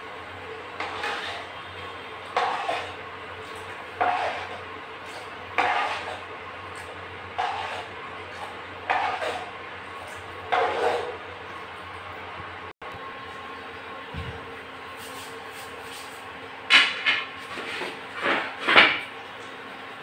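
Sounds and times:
steady low hum: 0.0 - 18.3
spoon scraping a pan: 0.8 - 9.6, 10.5 - 11.2.

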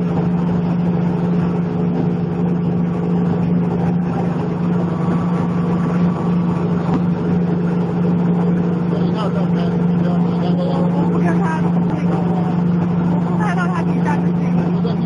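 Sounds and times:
plastic agglomerator machine humming: 0.0 - 15.0.

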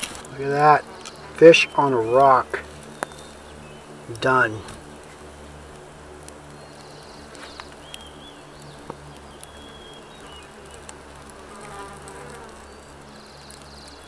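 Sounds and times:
flying insect buzzing: 0.0 - 14.0.

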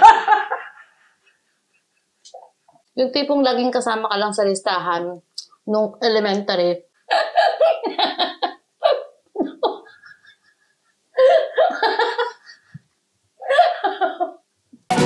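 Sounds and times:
woman laughing: 0.0 - 1.4, 7.1 - 12.8, 13.4 - 14.4.

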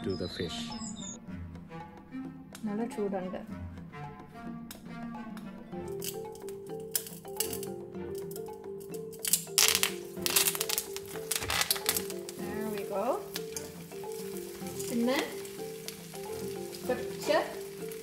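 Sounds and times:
background music: 0.0 - 18.0
oil sizzling in a pan: 9.2 - 18.0.

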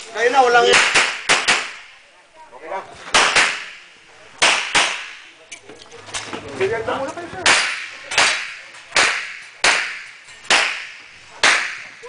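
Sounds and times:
pistol shots with echo: 0.7 - 1.9, 3.1 - 5.3, 7.4 - 12.0.

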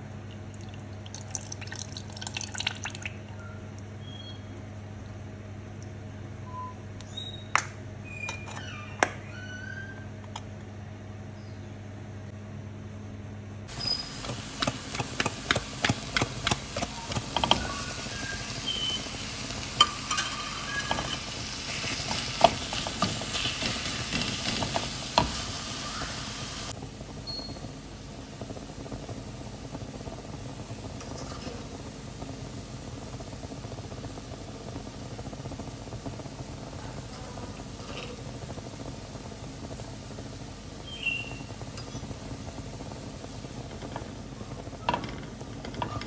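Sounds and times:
food sizzling in a frying pan: 13.7 - 46.0.

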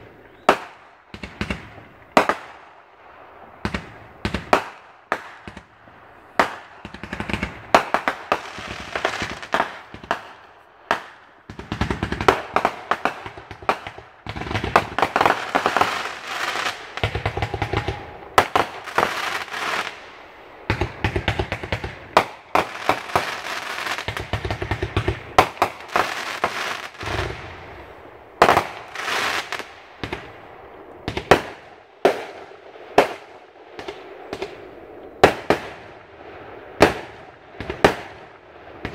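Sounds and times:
firework crackling: 0.0 - 38.9.

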